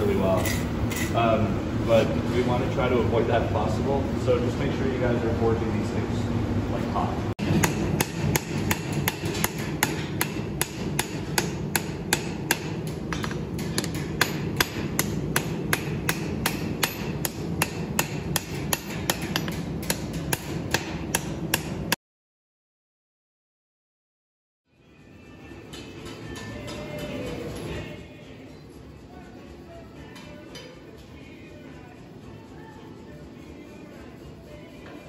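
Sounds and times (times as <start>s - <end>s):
hammer ringing on anvil: 7.6s - 21.7s.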